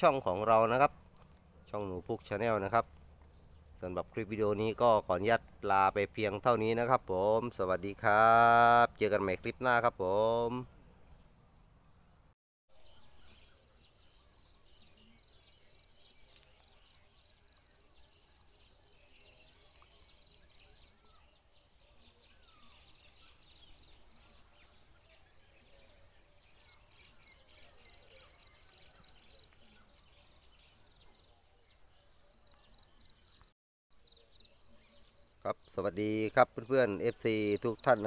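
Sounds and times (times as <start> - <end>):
faint bird chirps: 9.8 - 38.0.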